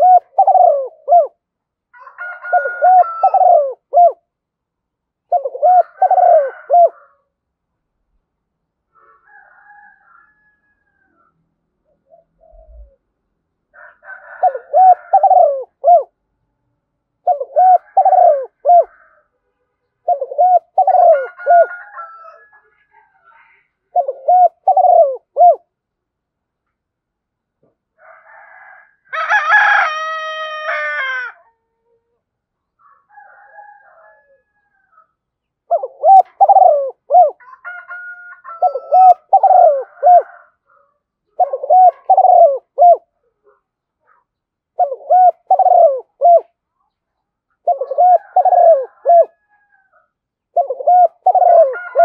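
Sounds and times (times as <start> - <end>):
dove cooing: 0.0 - 1.4, 2.4 - 4.3, 5.2 - 7.3, 12.0 - 13.1, 13.8 - 16.2, 17.2 - 19.2, 20.0 - 22.4, 23.9 - 25.7, 35.6 - 37.6, 38.4 - 43.6, 44.7 - 46.6, 47.6 - 52.0
rooster crowing: 1.9 - 3.8, 5.6 - 7.3, 8.9 - 11.4, 13.7 - 15.7, 17.7 - 19.4, 20.8 - 23.5, 28.0 - 32.0, 32.8 - 35.2, 37.3 - 40.8, 47.8 - 50.1, 51.2 - 52.0.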